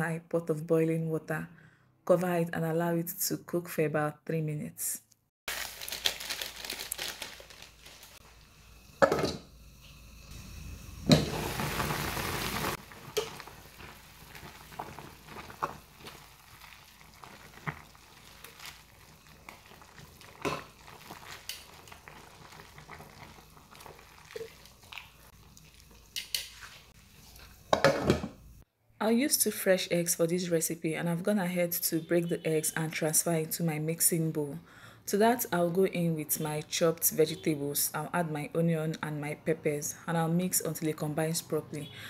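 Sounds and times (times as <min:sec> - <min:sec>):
tongs clicking against a pot: 0:26.2 - 0:26.5.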